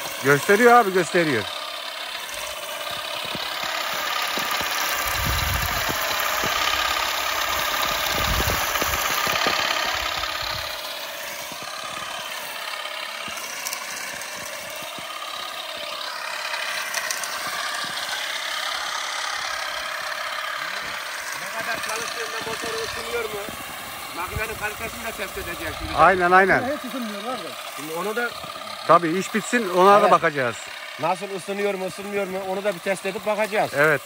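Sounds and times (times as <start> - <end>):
electric shaker whirring rattle: 0.0 - 34.0
low rumbles: 2.4 - 10.8.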